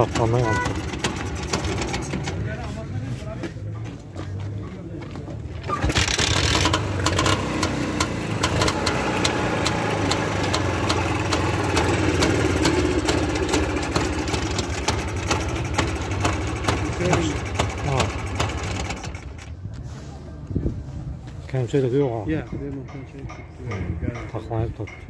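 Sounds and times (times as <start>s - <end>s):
motorcycle engine kick-started: 0.0s - 2.4s, 5.6s - 19.6s
motorcycle engine idling: 6.0s - 19.5s.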